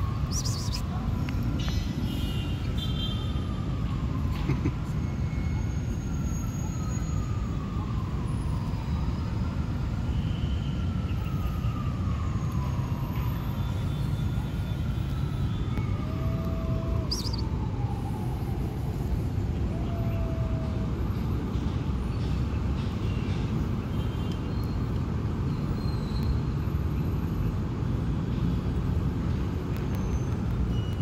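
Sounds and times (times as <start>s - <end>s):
distant emergency siren wailing: 0.0s - 22.8s
city traffic rumble: 0.0s - 31.0s.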